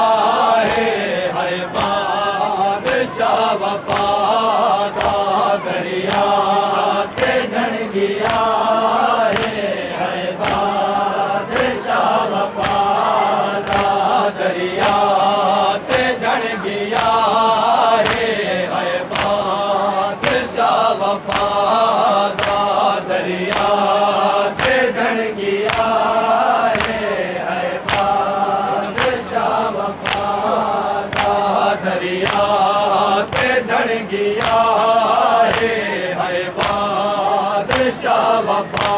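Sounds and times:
men chanting in unison: 0.0s - 38.9s
chest-beating slaps: 1.5s - 2.1s, 8.2s - 8.6s, 9.3s - 9.6s, 10.4s - 10.8s, 11.5s - 14.0s, 14.8s - 15.1s, 16.9s - 17.3s, 18.0s - 18.4s, 19.1s - 19.5s, 21.2s - 21.6s, 22.3s - 22.7s, 23.4s - 23.8s, 25.6s - 26.0s, 26.7s - 27.0s, 27.8s - 29.3s, 29.9s - 30.4s, 31.1s - 31.5s, 32.1s - 32.6s, 34.3s - 34.8s, 35.4s - 35.8s, 36.6s - 37.0s, 37.6s - 38.0s.

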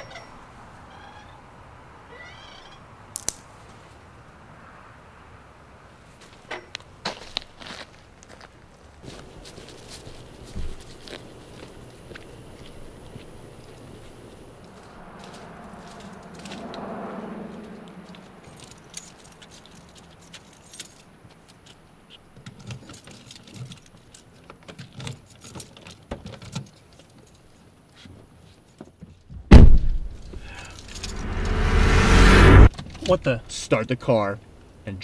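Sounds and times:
keys jangling: 18.5s - 21.1s
car door shutting: 29.5s - 30.4s
loud swelling sound: 30.0s - 32.7s.

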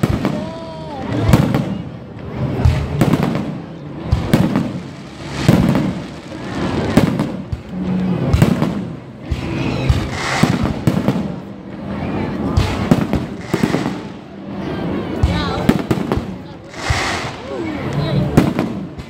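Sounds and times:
fireworks fizzing: 0.0s - 14.6s, 15.2s - 19.0s
fireworks bursting with bangs: 0.0s - 19.0s.

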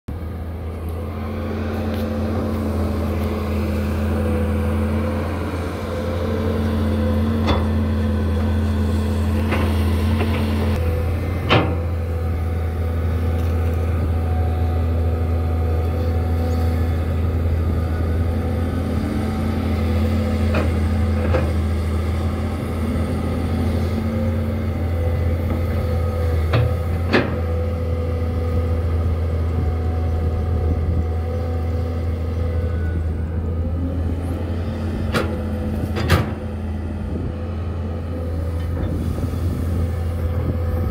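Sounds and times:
excavator diesel engine running: 0.1s - 40.9s.

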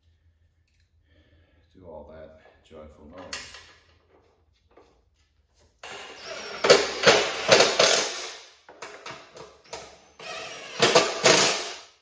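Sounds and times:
impact driver hammering rattle: 6.2s - 8.4s.

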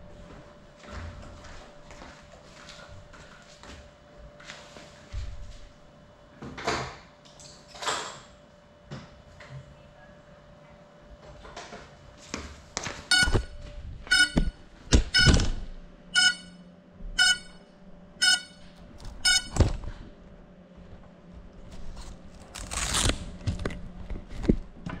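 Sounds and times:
short high electronic beeps: 13.1s - 14.6s, 15.2s - 15.4s, 16.2s - 16.6s, 17.2s - 17.6s, 18.2s - 19.6s.

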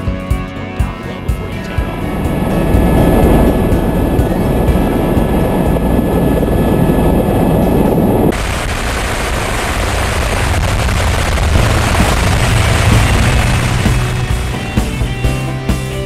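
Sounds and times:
helicopter in flight: 1.1s - 15.3s.

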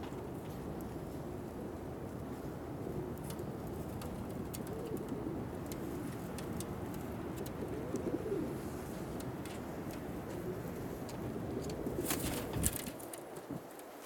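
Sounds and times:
pigeons cooing: 2.8s - 13.4s.

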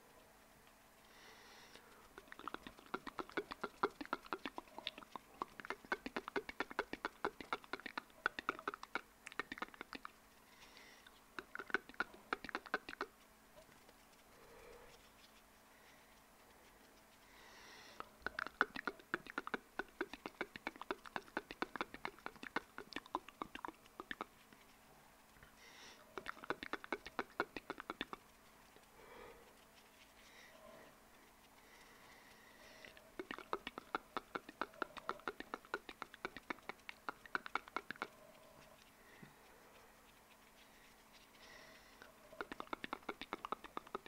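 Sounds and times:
soft breathy sound: 1.0s - 3.0s, 10.3s - 12.9s, 13.7s - 23.4s, 24.0s - 37.4s, 38.0s - 44.0s
tongue and lip clicks: 1.7s - 13.7s, 17.8s - 24.7s, 26.0s - 29.6s, 31.3s - 44.0s.

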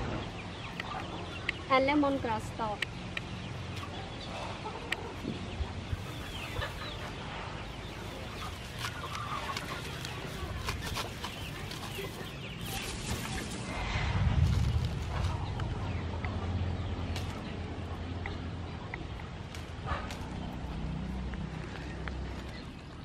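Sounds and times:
chickens clucking: 0.0s - 13.7s
leaves rustling: 5.8s - 16.1s
sharp crackles: 8.0s - 15.9s, 17.1s - 17.5s.

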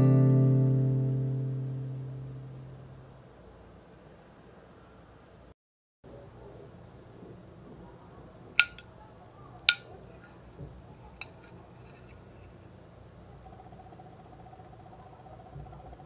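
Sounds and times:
plastic spoon clicking on plate: 8.6s - 8.8s, 9.6s - 9.9s.

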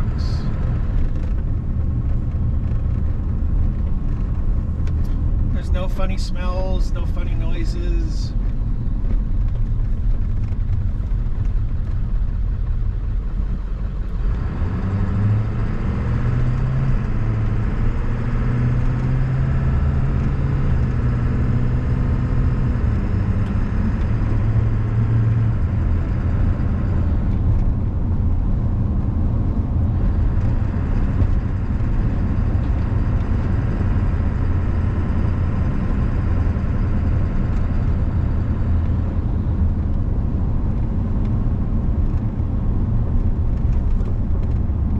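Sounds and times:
diesel truck engine running: 0.0s - 44.9s.

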